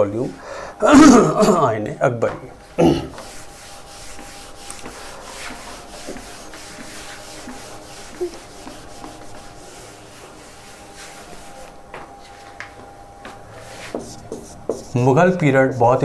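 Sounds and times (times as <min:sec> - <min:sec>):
writing scratching on a board: 0:03.1 - 0:11.7, 0:13.6 - 0:16.0.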